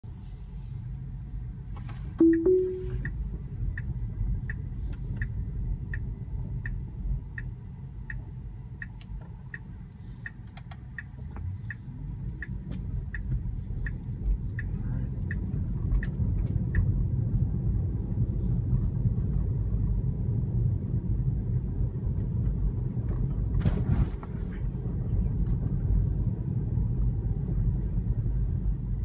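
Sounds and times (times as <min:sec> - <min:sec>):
low road rumble: 0:00.0 - 0:29.0
turn signal ticking: 0:02.1 - 0:18.2
two-note rising chime: 0:02.2 - 0:03.0.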